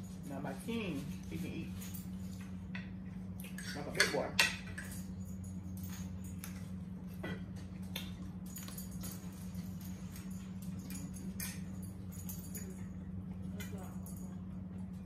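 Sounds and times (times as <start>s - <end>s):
steady low hum: 0.0s - 15.0s
forks tapping on plates: 2.7s - 5.0s.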